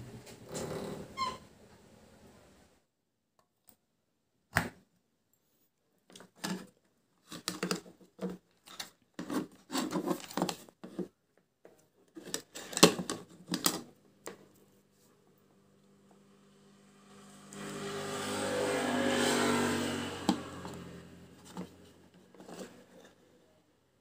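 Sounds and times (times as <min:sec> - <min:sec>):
hard plastic clicks and scrapes: 0:06.1 - 0:11.1, 0:20.2 - 0:23.2.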